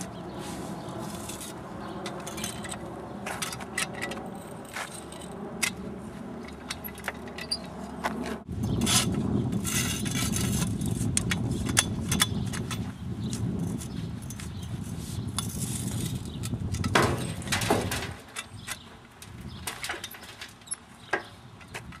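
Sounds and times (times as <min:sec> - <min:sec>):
steady low rumble: 0:00.0 - 0:19.9.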